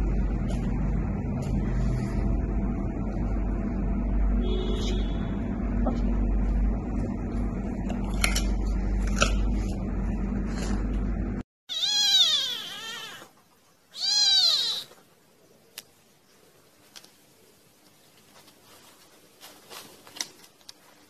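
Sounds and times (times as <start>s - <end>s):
kitten mewing: 11.7s - 13.3s, 13.9s - 15.0s
low steady background noise: 11.9s - 21.0s.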